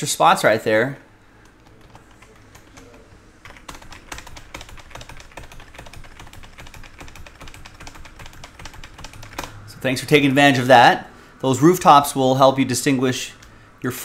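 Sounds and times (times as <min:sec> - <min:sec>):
typing on computer keyboard: 0:01.4 - 0:09.6.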